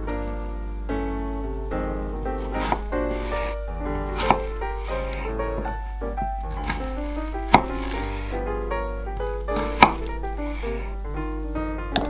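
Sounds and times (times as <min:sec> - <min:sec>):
background music: 0:00.0 - 0:12.0
knife chopping on wooden board: 0:02.4 - 0:02.9, 0:04.0 - 0:05.2, 0:06.6 - 0:08.0, 0:09.5 - 0:10.1.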